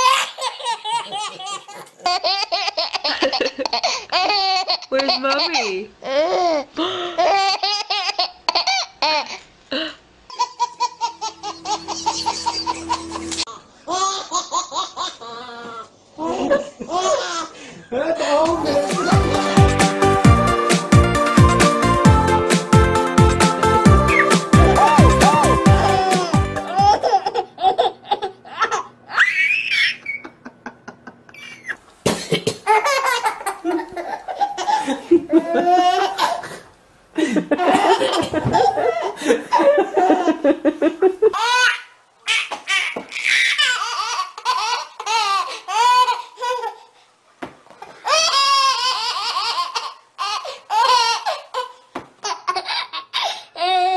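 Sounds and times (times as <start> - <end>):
baby squealing: 0.0 - 1.2, 10.3 - 15.8, 24.1 - 30.3, 31.4 - 31.8
babies laughing: 0.0 - 9.4, 10.3 - 17.6, 18.5 - 20.8, 24.0 - 31.8, 32.6 - 36.6, 37.5 - 46.9, 47.8 - 53.9
steady hum: 10.8 - 13.6.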